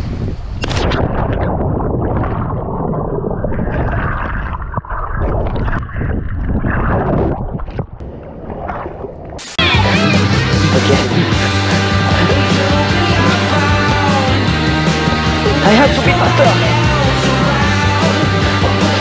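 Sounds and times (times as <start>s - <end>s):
music: 9.6s - 19.0s.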